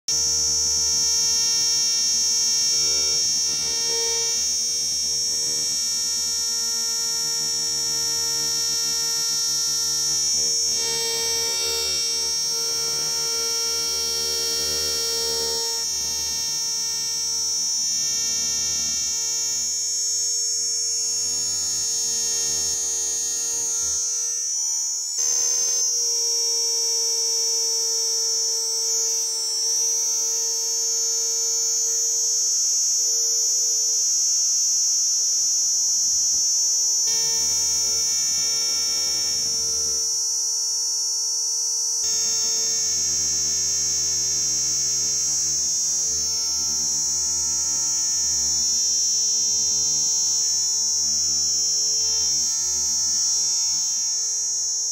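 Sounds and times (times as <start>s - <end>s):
cicada buzzing drone: 0.1s - 54.9s.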